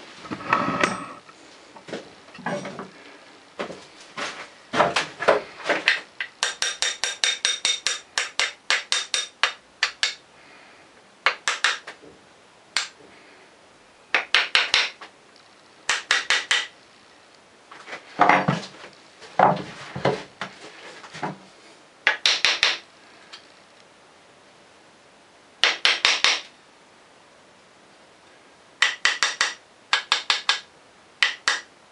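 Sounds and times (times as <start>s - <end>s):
hammer tapping wooden plane: 4.8s - 10.2s, 11.3s - 12.0s, 14.1s - 15.0s, 15.9s - 16.7s, 22.1s - 22.8s, 25.6s - 26.5s, 28.8s - 31.7s.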